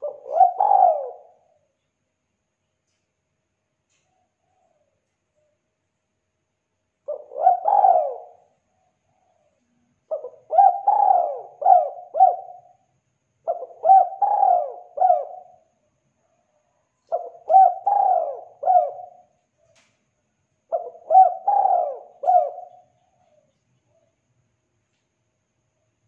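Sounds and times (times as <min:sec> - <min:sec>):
dove cooing: 0:00.0 - 0:01.7, 0:07.0 - 0:15.7, 0:17.0 - 0:19.8, 0:20.7 - 0:24.1.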